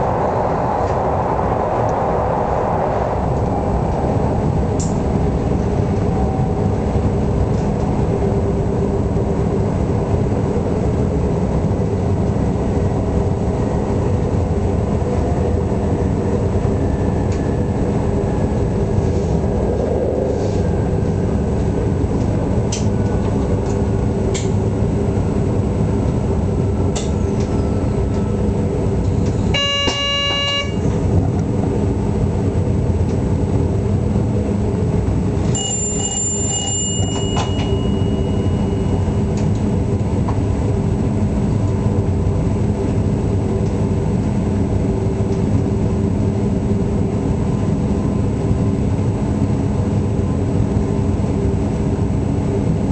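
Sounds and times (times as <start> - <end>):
train wheels rumbling on rail: 0.0 - 52.9
train horn: 29.5 - 31.0.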